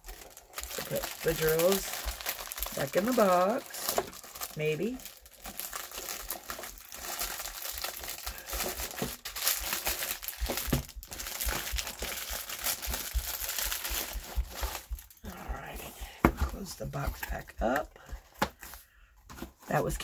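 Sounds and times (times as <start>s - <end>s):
plastic bags crinkling: 0.0s - 18.8s.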